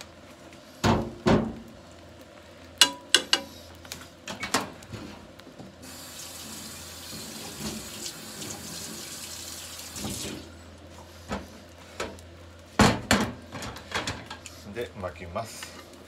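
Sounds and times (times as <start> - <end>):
water running from tap: 5.8 - 10.5.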